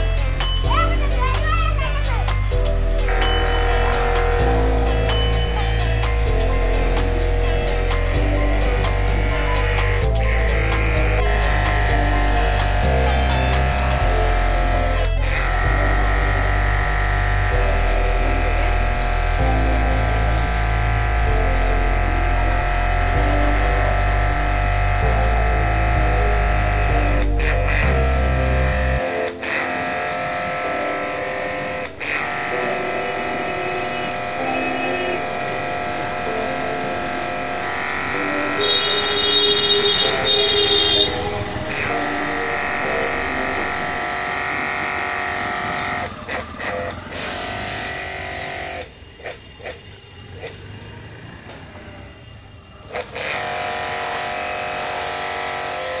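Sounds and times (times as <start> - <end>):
pressure washer motor whine: 2.3 - 49.2, 52.8 - 56.0.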